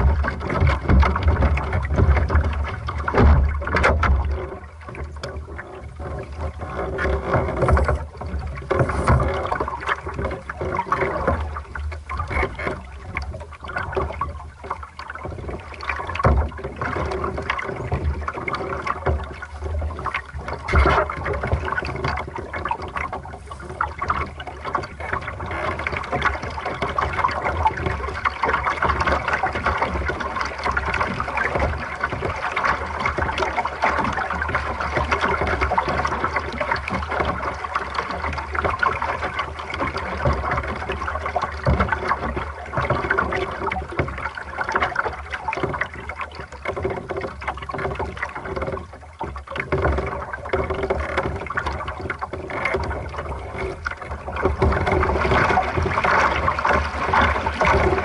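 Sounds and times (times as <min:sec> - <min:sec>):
water splashing along boat hull: 0:00.0 - 0:58.0.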